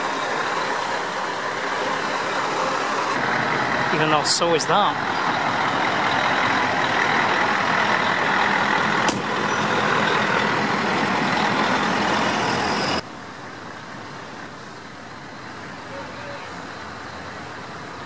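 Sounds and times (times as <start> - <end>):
truck engine driving past: 0.0 - 13.0.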